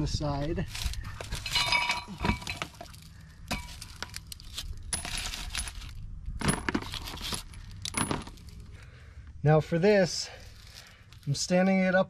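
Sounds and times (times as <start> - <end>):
metallic clinks and knocks: 1.3 - 8.6.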